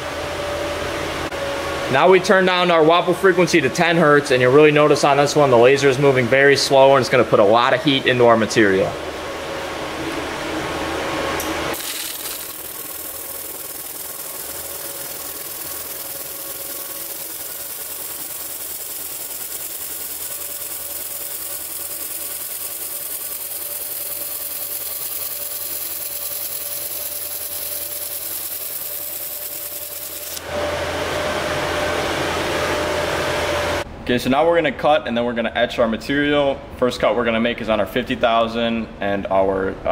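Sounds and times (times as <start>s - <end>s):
laser welder hissing: 11.7s - 30.4s.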